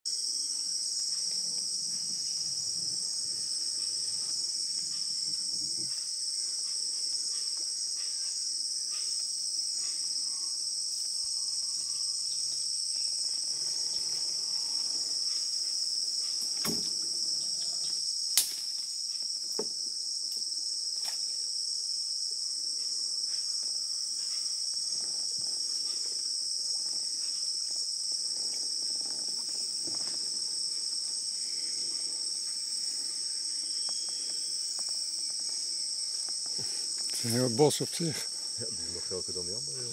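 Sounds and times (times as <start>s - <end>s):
insects chorus drone: 0.1s - 39.9s.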